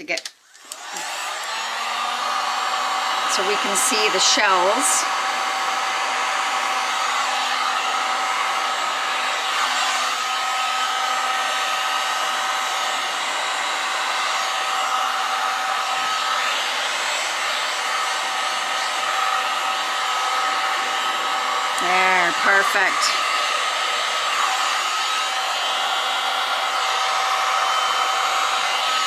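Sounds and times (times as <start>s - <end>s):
heat gun blowing air: 0.5s - 29.0s.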